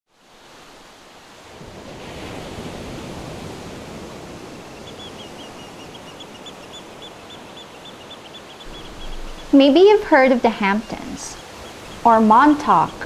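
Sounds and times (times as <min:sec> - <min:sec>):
steady rushing noise: 0:00.6 - 0:13.0
bird chirping: 0:04.7 - 0:13.0.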